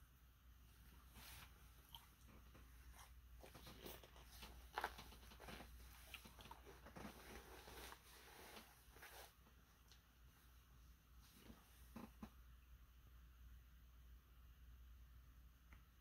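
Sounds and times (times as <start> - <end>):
small clicks and rustles: 1.1 - 9.1.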